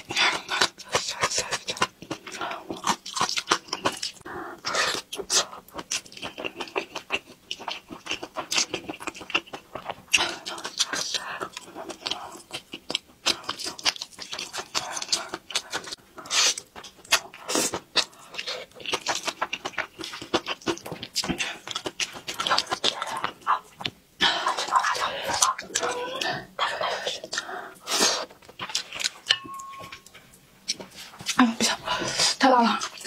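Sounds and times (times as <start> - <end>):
person chewing noodles: 0.0 - 33.0.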